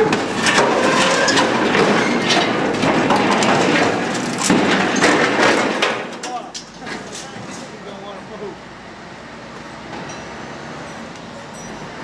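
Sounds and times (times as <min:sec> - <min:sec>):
sharp knocks and cracks: 0:00.0 - 0:07.6
metal grinding and scraping: 0:00.0 - 0:07.8.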